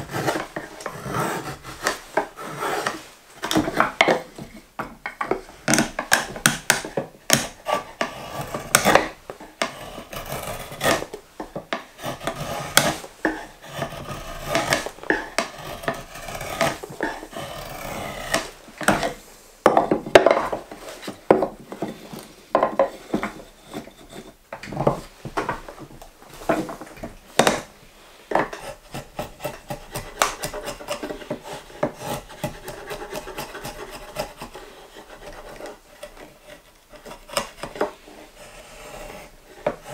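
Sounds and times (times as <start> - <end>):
drawknife shaving wood: 0.0 - 4.6, 5.3 - 19.3, 28.3 - 39.9.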